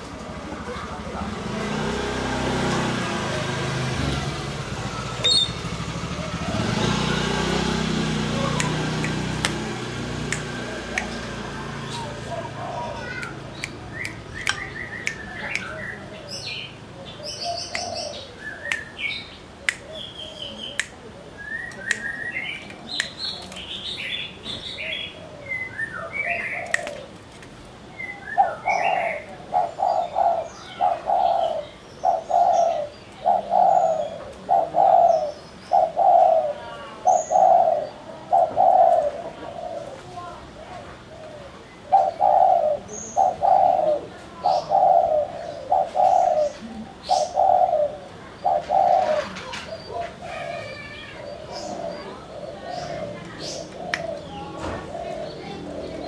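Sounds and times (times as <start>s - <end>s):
dove cooing: 8.2s - 13.2s, 24.8s - 27.2s, 28.4s - 56.0s
high chirps and clicks: 8.5s - 9.6s, 10.2s - 11.4s, 13.1s - 15.9s, 17.6s - 21.0s, 21.6s - 23.7s, 26.6s - 27.0s.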